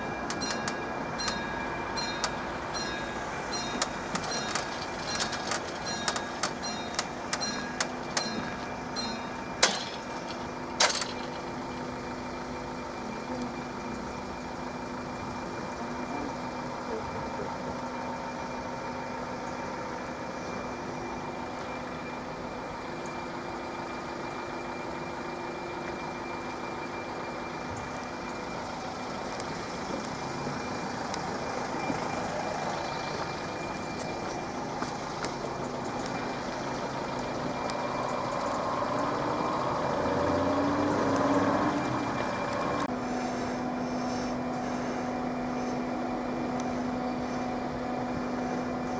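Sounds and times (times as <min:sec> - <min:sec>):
engines idling: 0:00.0 - 0:48.9
sharp clicks: 0:03.7 - 0:08.3.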